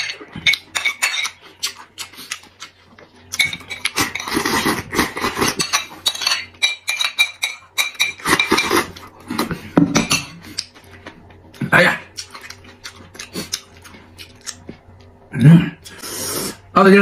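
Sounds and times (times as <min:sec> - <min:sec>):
wet chewing: 0:00.5 - 0:05.6, 0:12.1 - 0:15.1
metal spoon clinking on ceramic bowl: 0:05.6 - 0:08.8.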